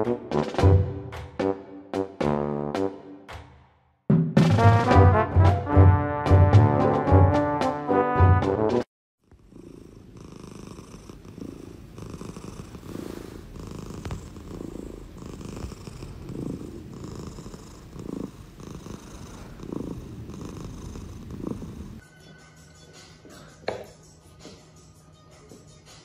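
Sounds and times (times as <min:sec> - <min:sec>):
cat purring: 0:09.2 - 0:22.0.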